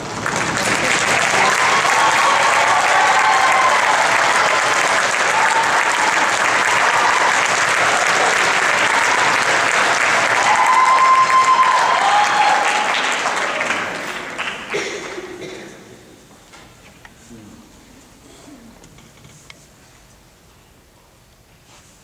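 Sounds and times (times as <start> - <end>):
audience applauding: 0.0 - 15.5
cheering whoops: 1.1 - 13.8.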